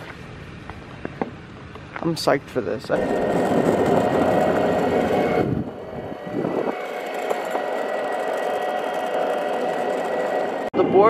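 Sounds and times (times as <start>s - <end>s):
skateboard wheels rolling on asphalt: 0.0s - 10.7s.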